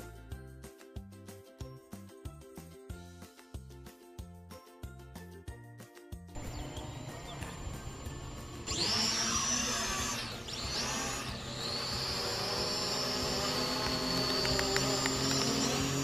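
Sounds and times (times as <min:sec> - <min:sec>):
drone propellers whining: 0:06.4 - 0:16.0.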